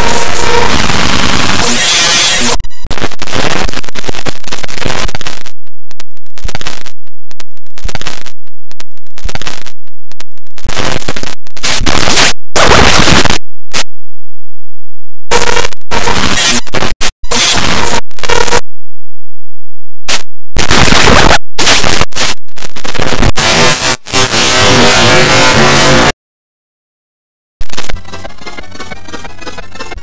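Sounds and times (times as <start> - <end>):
distorted cartoon soundtrack: 0.0 - 5.4, 10.6 - 13.4, 20.6 - 26.2, 27.6 - 30.0.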